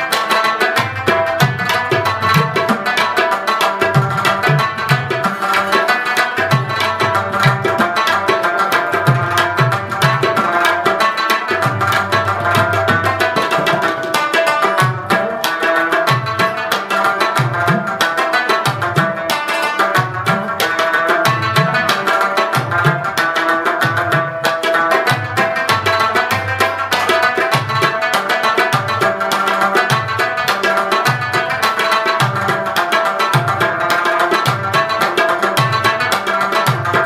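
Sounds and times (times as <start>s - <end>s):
drum strokes: 3.8s - 16.7s.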